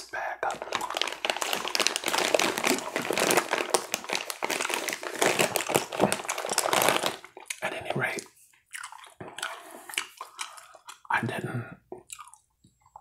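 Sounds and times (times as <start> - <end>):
plastic wrapper crinkling: 0.4 - 7.5.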